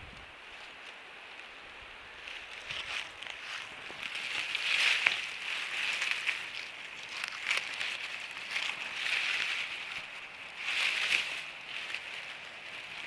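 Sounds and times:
grass and dry leaves rustling: 0.0 - 13.0
small crackles: 0.1 - 13.0.

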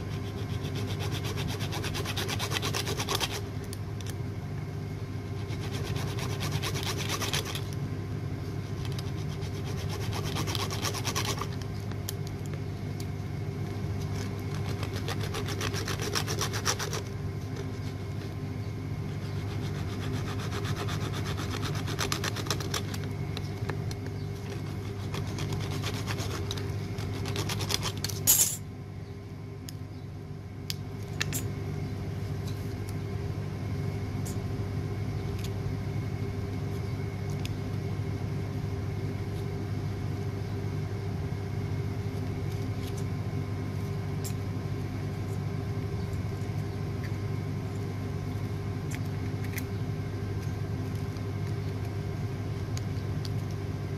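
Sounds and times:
metal file rasping on metal: 0.0 - 3.4, 5.5 - 7.6, 14.7 - 17.0, 19.3 - 22.8
low machine hum: 0.0 - 53.9.

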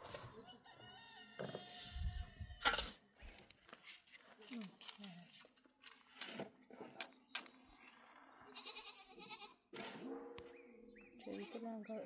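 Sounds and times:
goat bleating: 8.4 - 9.6.

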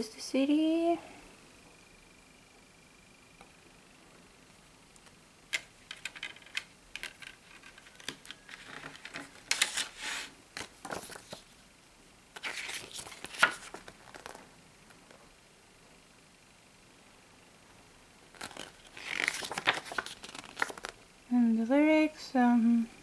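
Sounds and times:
paper booklet rustling: 7.4 - 11.6, 12.4 - 14.5, 18.3 - 21.0.

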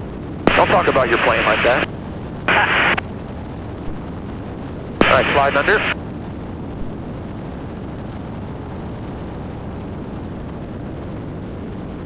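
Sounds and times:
airplane engine drone: 0.0 - 6.0
airflow noise: 0.5 - 1.9, 5.0 - 6.0.

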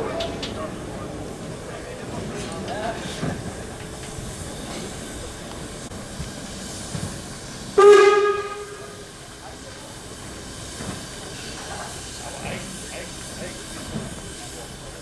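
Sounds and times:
steam hissing: 0.2 - 15.0
steam locomotive whistle: 7.7 - 9.1.

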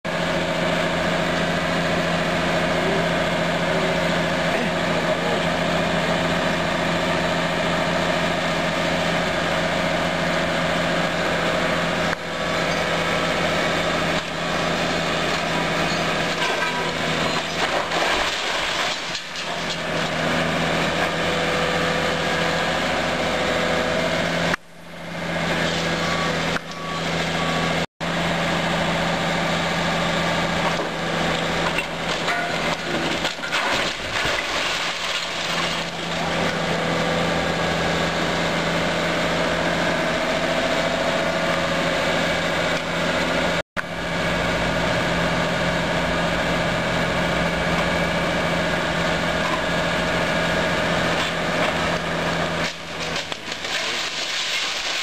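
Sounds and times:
diesel engine running: 0.0 - 55.0
masonry crunching: 12.8 - 21.7, 30.4 - 37.0, 50.5 - 55.0.

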